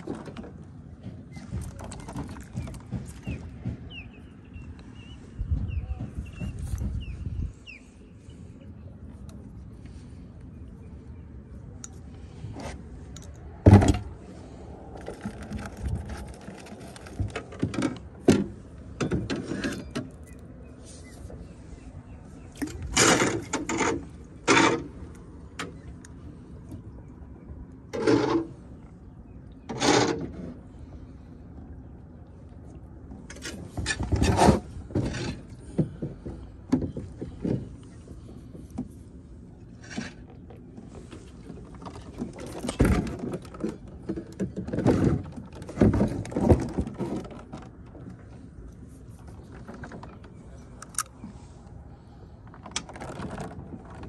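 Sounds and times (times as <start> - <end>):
fishing gear knocking in boat hull: 0.0 - 4.1.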